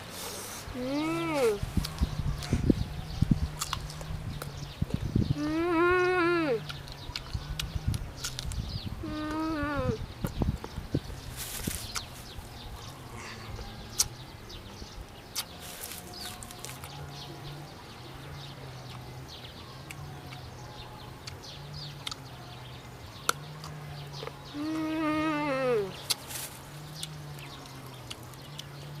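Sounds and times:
birds chirping: 0.0 - 29.0
chewing and crunching mango: 1.8 - 5.1, 6.6 - 8.7, 11.7 - 17.6, 18.8 - 24.8, 25.8 - 29.0
sharp biting clicks: 3.5 - 4.5, 22.0 - 22.3.

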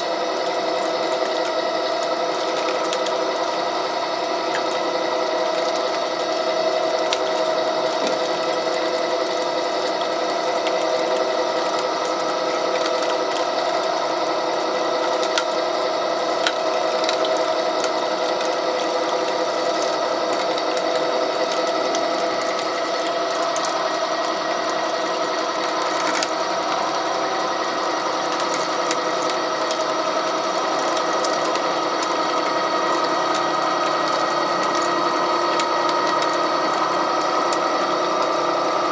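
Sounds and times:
pipe threading machine gear whine: 0.0 - 38.9.

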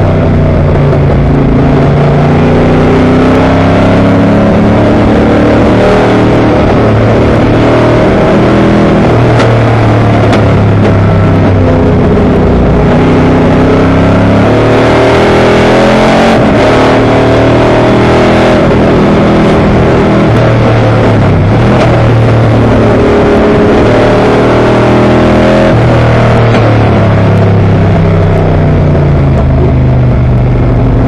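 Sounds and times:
race car engine revving: 0.0 - 31.0.

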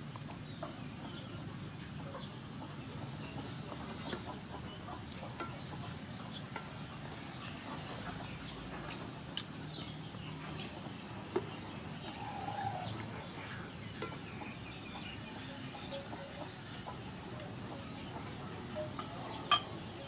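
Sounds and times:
faint bird calls: 11.8 - 13.7.

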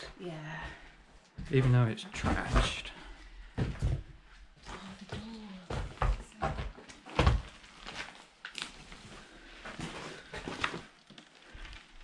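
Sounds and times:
footsteps on wooden floorboards: 0.0 - 7.6.

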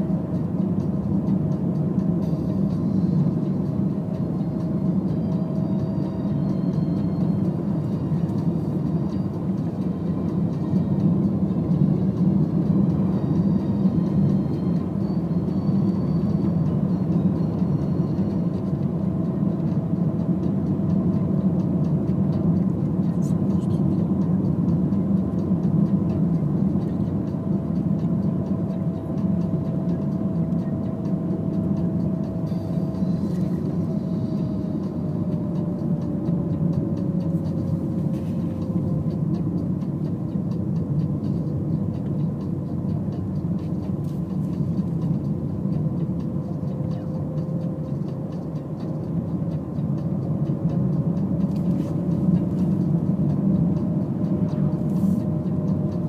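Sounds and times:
car engine and tyre noise: 0.0 - 56.0.

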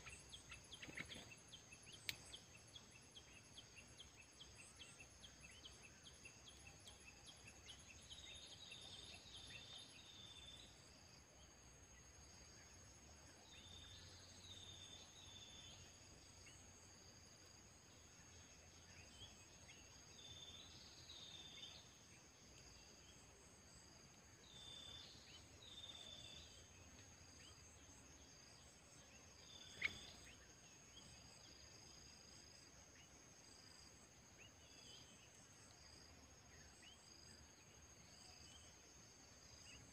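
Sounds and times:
bird calls: 0.0 - 2.4, 29.5 - 30.5
insect drone: 0.0 - 39.9.

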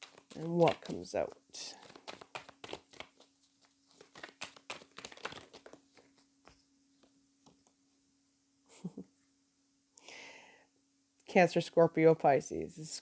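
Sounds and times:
cards being shuffled: 0.0 - 7.8
faint steady hum: 0.0 - 13.0.

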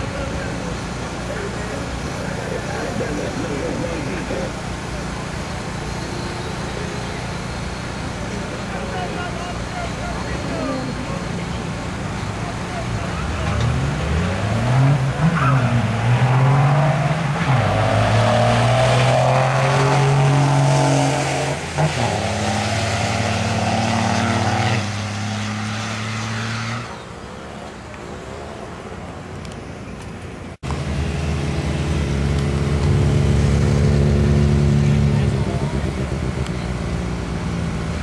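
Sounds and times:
steady engine drone: 0.0 - 16.0, 30.6 - 38.0
diesel trucks accelerating: 0.0 - 38.0.

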